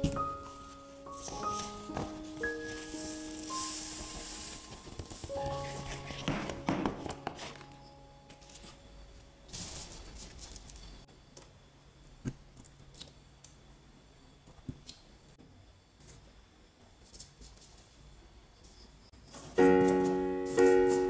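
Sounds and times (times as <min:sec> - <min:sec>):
sand grains pattering: 0:00.0 - 0:06.1
paper rustle: 0:00.0 - 0:08.8, 0:09.5 - 0:10.9
paper crinkling: 0:00.0 - 0:08.9, 0:09.5 - 0:11.0.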